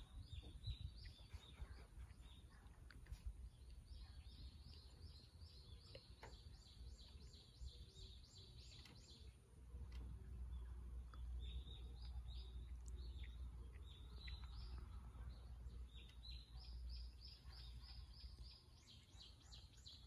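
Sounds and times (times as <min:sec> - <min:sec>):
small birds chirping: 0:00.0 - 0:20.0
low steady rumble: 0:06.3 - 0:19.5.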